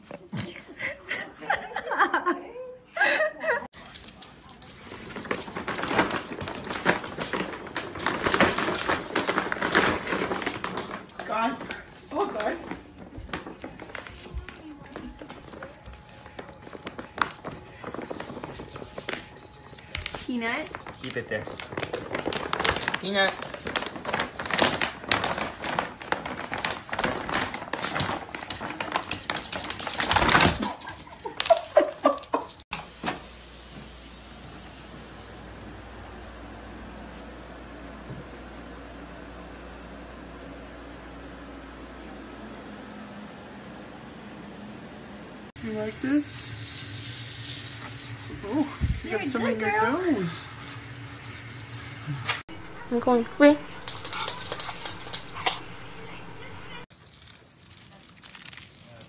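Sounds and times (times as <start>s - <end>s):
plastic bag rustling and crinkling: 4.6s - 32.4s, 52.5s - 59.0s.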